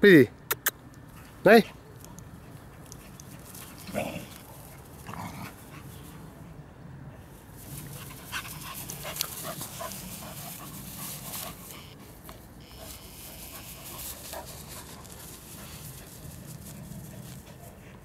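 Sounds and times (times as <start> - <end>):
dog panting hard: 8.0 - 11.9, 12.8 - 18.0.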